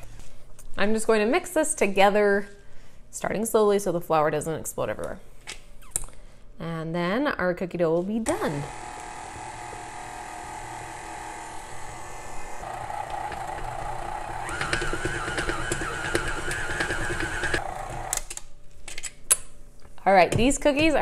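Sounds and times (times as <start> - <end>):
stand mixer motor whine: 8.5 - 18.3
beater clicking in dough: 12.6 - 18.3.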